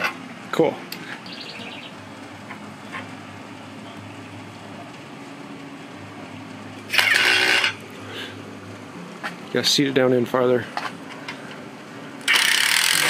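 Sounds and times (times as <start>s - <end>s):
steady low hum: 0.0s - 12.9s
cordless drill running: 6.9s - 7.8s, 12.2s - 13.0s.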